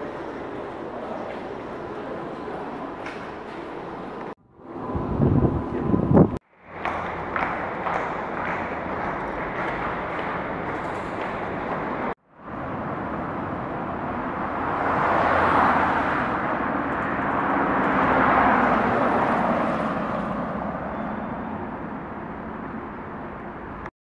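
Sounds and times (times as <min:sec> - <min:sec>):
cars passing with tyre hiss: 0:06.4 - 0:23.9.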